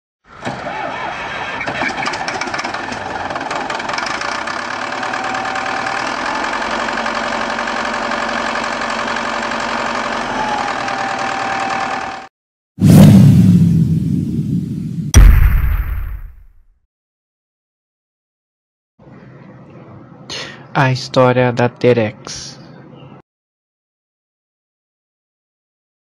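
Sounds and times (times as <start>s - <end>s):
diesel engine starting and running: 0.2s - 14.2s.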